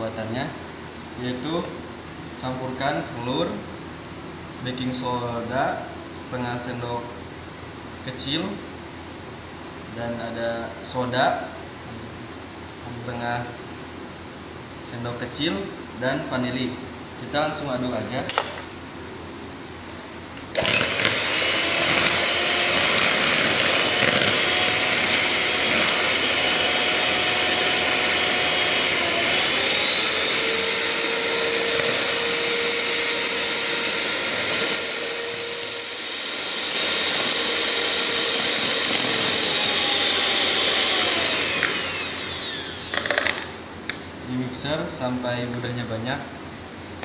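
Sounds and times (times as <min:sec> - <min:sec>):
electric hand mixer whining: 0:20.5 - 0:43.6.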